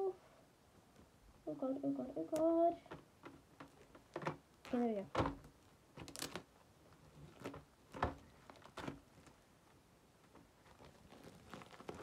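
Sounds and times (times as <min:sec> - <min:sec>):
plastic wrap crinkling: 0:05.6 - 0:09.4, 0:10.6 - 0:12.0.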